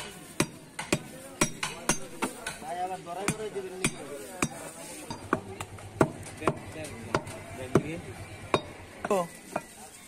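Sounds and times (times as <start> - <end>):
cleaver chopping on wooden block: 3.2 - 7.9.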